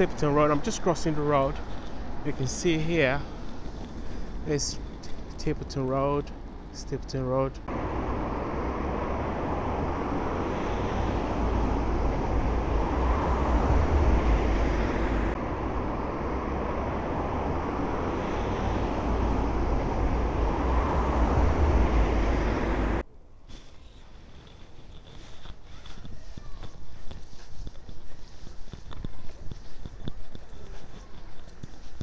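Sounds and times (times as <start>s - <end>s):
cars driving past: 7.6s - 23.0s.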